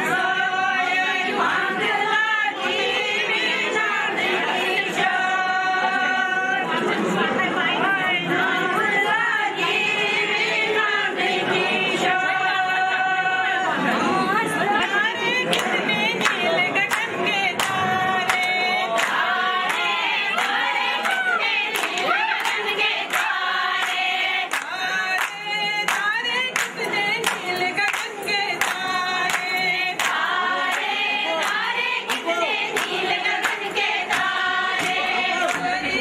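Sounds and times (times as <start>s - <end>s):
women singing together: 0.0s - 36.0s
hand claps: 15.4s - 36.0s.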